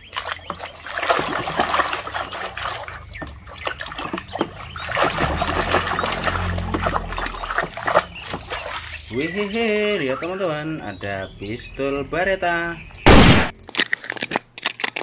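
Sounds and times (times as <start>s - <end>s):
water splashing and trickling: 0.0s - 14.1s
hand scrubbing: 0.6s - 10.9s.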